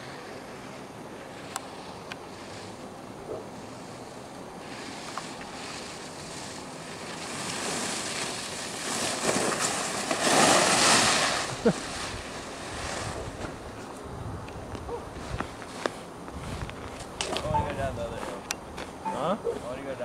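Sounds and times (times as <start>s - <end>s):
skis scraping over packed snow: 3.6s - 13.9s.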